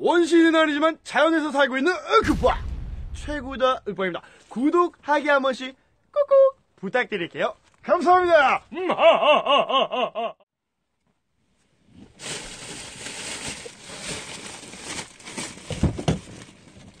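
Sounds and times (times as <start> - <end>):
low thumps: 2.2 - 4.0
man laughing: 8.7 - 10.4
rustling movement inside car: 12.1 - 17.0.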